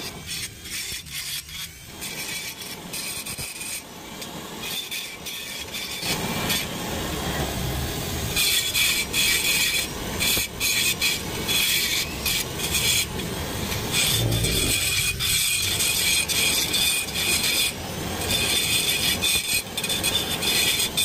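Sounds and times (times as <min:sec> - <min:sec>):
rotary tool grinding metal: 0:00.0 - 0:06.9, 0:08.0 - 0:21.0.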